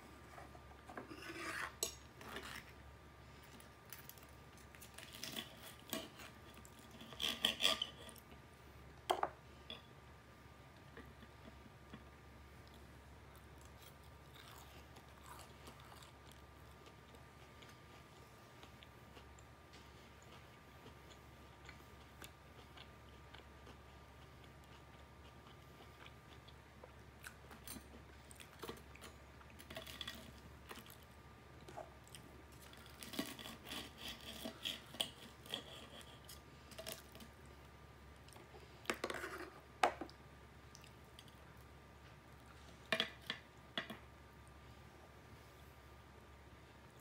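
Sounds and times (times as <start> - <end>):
chewing: 11.0 - 19.5
crispy chicken crunching: 13.4 - 17.0.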